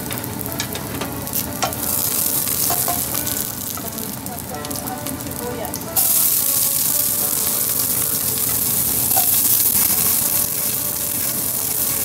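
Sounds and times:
onions sizzling in hot oil: 0.0 - 12.0.

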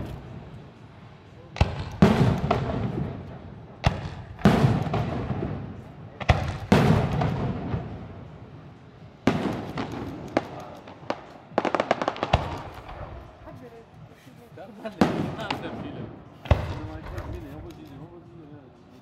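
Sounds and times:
firework shells bursting: 1.5 - 7.9, 9.2 - 13.4.

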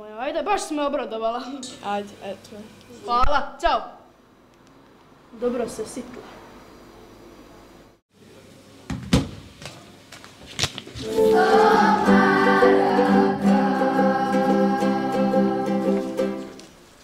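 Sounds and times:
music with choir-like voices: 11.0 - 16.6.

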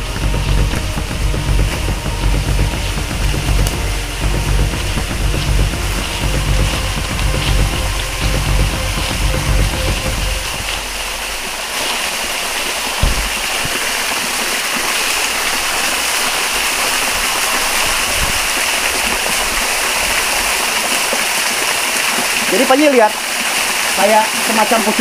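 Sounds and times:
waterfall splashing into pool: 0.0 - 25.0
short thump: 13.0 - 13.7.

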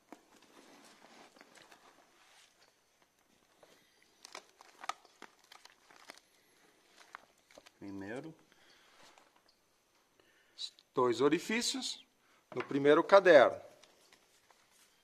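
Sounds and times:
briefcase contents rustling: 0.0 - 8.0.

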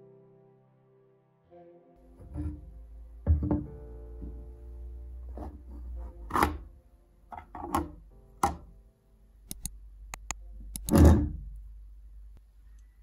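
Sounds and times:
soft background music: 0.0 - 11.8
sharp metal clicks: 9.5 - 11.0.

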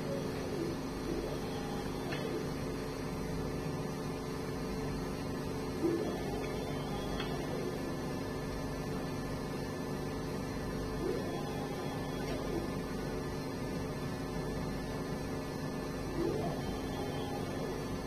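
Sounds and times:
electrical hum: 0.0 - 18.0
motor whines gliding in pitch: 10.9 - 12.8.

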